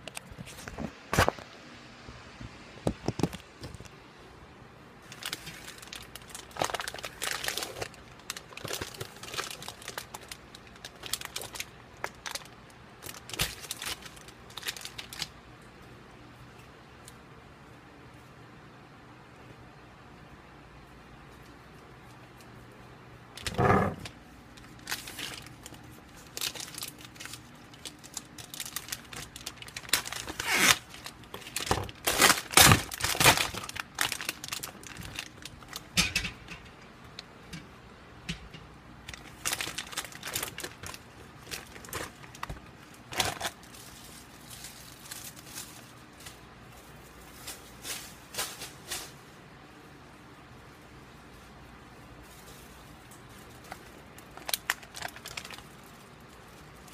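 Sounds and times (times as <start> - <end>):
plastic bag crinkling: 5.0 - 15.4, 23.3 - 36.5, 39.0 - 49.2, 52.1 - 56.9.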